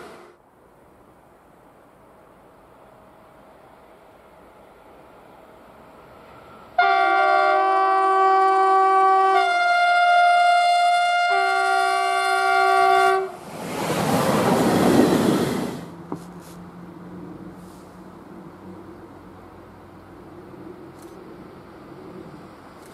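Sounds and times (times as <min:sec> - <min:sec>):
train passing rush: 0:00.0 - 0:22.9
train horn blast: 0:06.8 - 0:13.4.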